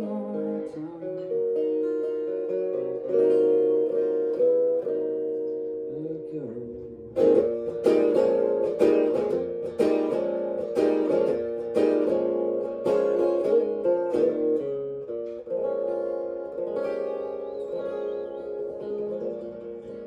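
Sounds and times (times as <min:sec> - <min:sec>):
acoustic guitar strummed: 0:00.0 - 0:20.0.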